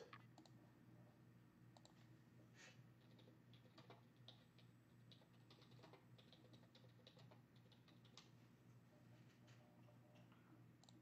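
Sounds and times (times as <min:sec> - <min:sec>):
low steady hum: 0:00.0 - 0:11.0
computer keyboard typing: 0:03.0 - 0:08.3.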